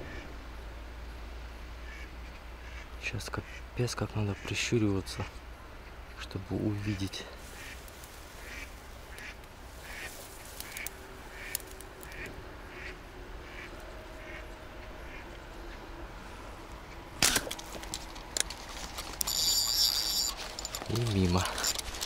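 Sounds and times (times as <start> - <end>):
short calls: 17.2 - 22.0.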